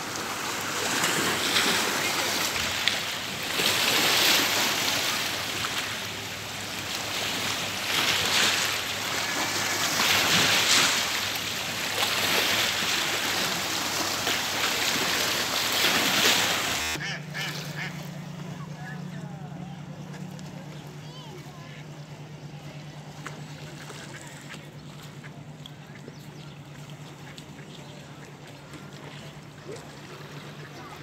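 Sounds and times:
waves splashing on rocks: 0:00.0 - 0:17.8
steady low hum: 0:00.0 - 0:31.0.

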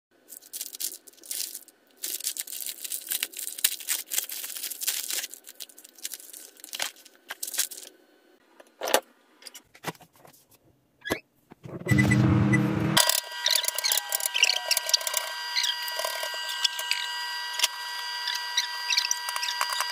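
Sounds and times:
plastic wrap crinkling and tearing: 0:00.2 - 0:08.0.

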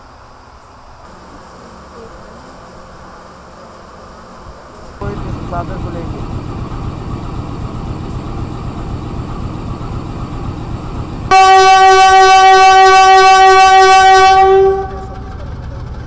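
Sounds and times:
low rumble: 0:05.0 - 0:11.4
locomotive horn blast: 0:11.3 - 0:15.3.

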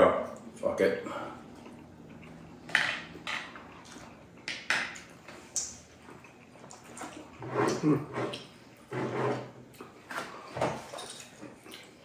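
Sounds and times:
wet mouth clicks and smacks: 0:04.5 - 0:05.9.

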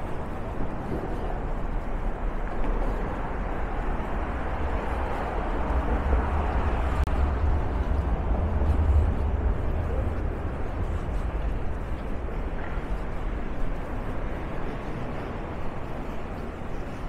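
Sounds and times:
heavy low rumble: 0:00.0 - 0:17.0
traffic going by: 0:00.0 - 0:17.0.

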